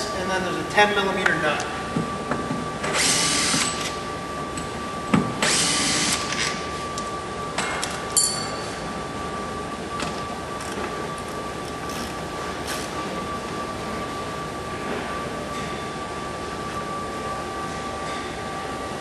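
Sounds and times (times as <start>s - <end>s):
cordless drill whirring: 2.9s - 3.9s, 5.4s - 6.5s
light metallic clink: 8.2s - 8.7s.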